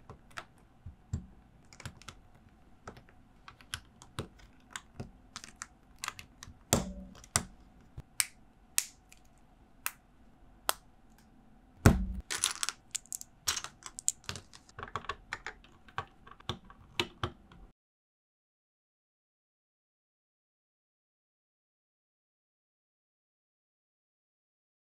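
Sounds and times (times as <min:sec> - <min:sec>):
plastic bricks clicking together: 0:02.9 - 0:07.5, 0:12.2 - 0:17.6.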